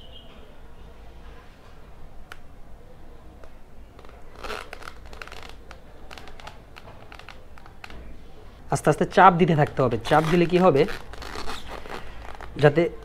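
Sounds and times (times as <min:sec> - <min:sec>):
rustling and scraping: 0:04.0 - 0:08.6, 0:09.6 - 0:13.0.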